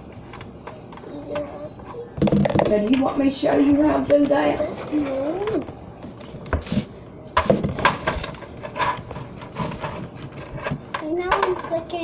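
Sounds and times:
plastic parts clicking and knocking: 10.6 - 11.8.

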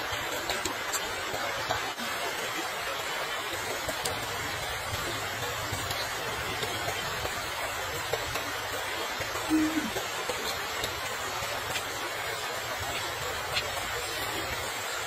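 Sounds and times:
steady rushing hiss: 0.0 - 15.0
low hummed mm: 9.5 - 10.0.

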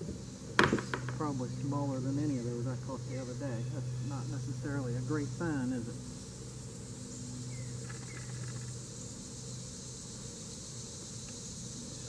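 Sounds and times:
insects droning: 0.0 - 12.0
low steady hum: 0.0 - 12.0
faint chirps: 2.9 - 12.0.

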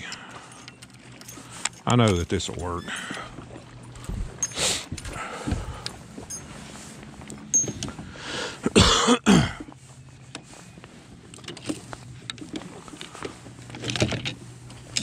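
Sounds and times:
fishing rods clicking and knocking: 0.0 - 3.5, 7.5 - 8.0, 11.3 - 15.0
person coughing: 8.6 - 9.7.

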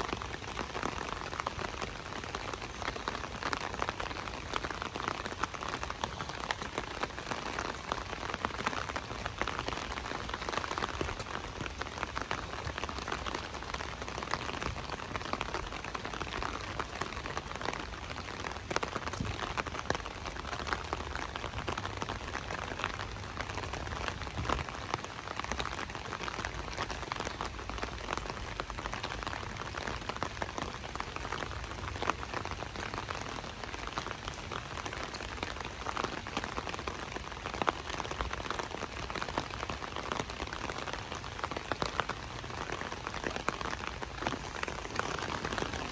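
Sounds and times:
light rain pattering: 0.0 - 45.9.

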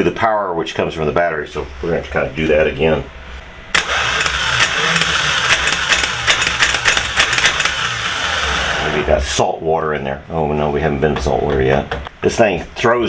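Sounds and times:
electric starter motor whirring: 3.7 - 9.1.

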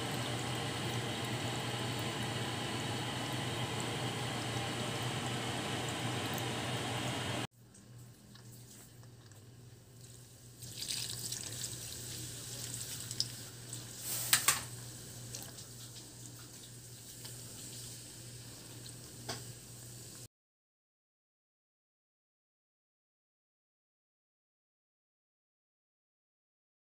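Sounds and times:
low steady hum: 0.0 - 13.8
water splashing and trickling: 10.0 - 14.0.

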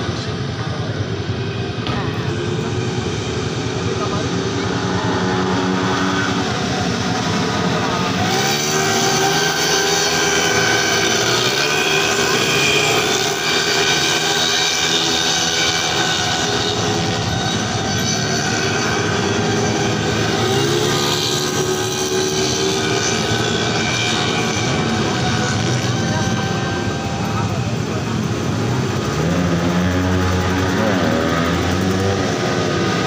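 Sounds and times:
scooter engines racing: 0.0 - 33.0.

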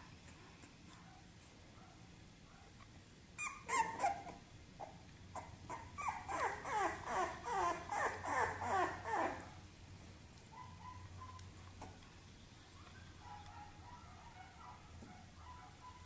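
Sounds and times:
puppy yapping: 3.4 - 9.6, 10.5 - 11.5, 13.2 - 16.0.

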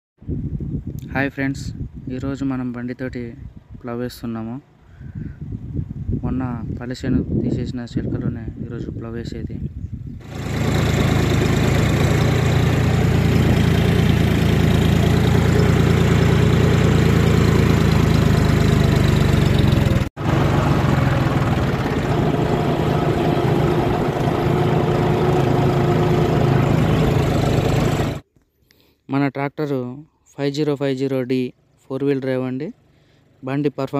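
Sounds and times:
tractor diesel engine running: 10.2 - 28.2.

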